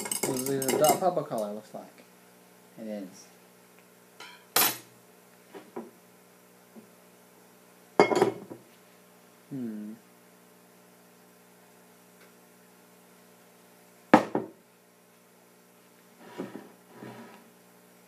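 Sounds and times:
glassware clattering: 0.0 - 1.0, 8.0 - 8.5
steady electrical hum: 0.0 - 18.0.

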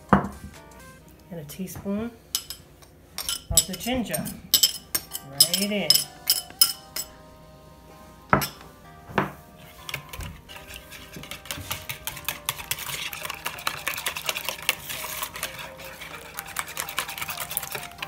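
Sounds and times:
whisk clicking in a bowl: 9.8 - 18.0.

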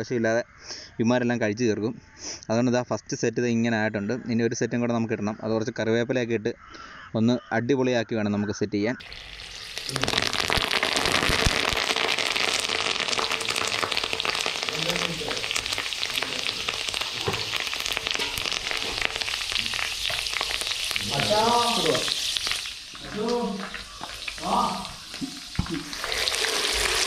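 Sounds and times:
leaves sizzling in hot oil: 9.0 - 27.0.

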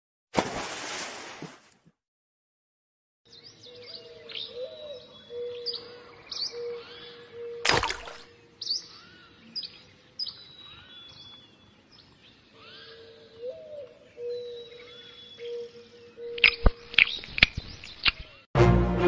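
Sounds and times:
small birds chirping: 3.3 - 18.5.

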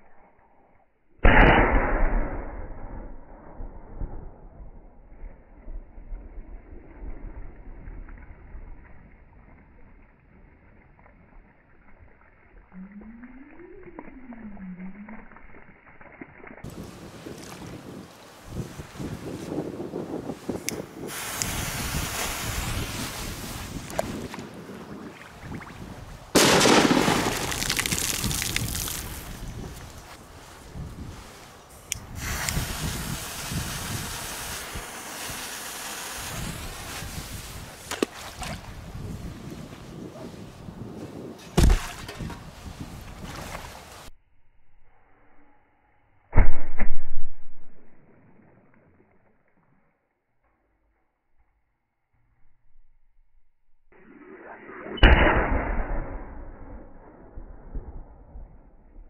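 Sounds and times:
low tone rising and falling: 12.6 - 16.6
firecracker crack: 20.5 - 24.2, 26.3 - 38.2
firecracker fuse hissing: 21.0 - 23.9, 30.6 - 37.9
droplets pattering on water: 26.8 - 29.4.

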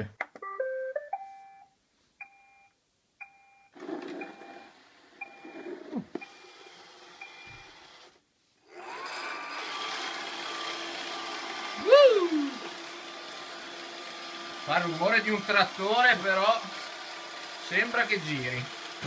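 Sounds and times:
drive motors whirring: 3.8 - 14.6
vacuum motor whirring and whining: 3.8 - 19.0.

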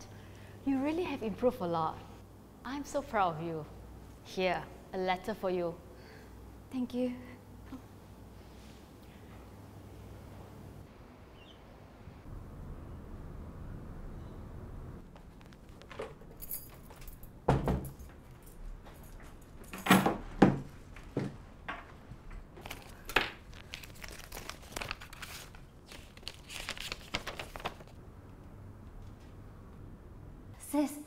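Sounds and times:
keys jingling: 16.1 - 20.2
paper crinkling: 22.6 - 28.0.

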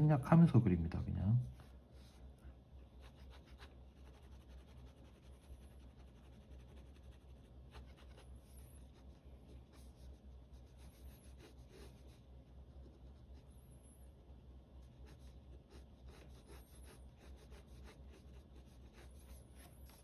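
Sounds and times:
low steady hum: 0.0 - 20.0
pen scratching on paper: 3.0 - 8.2, 8.8 - 12.2, 14.9 - 20.0.

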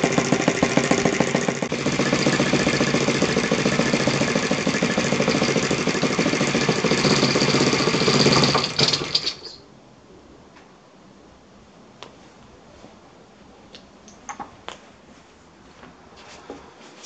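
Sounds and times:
model aircraft engine running: 0.0 - 9.5.

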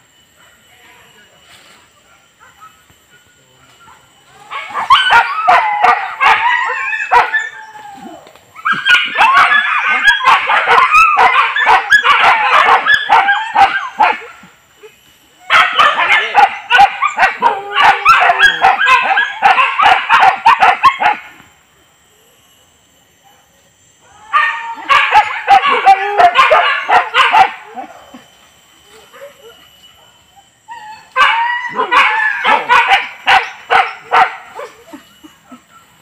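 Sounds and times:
dogs yelping and whining: 4.5 - 21.5, 24.3 - 36.0.

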